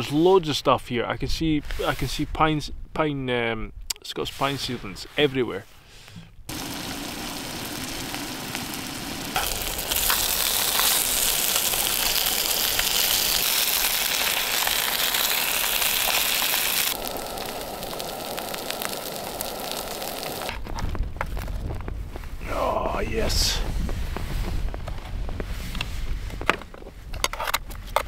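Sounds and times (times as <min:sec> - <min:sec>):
burgers sizzling in a frying pan: 0:06.5 - 0:20.5.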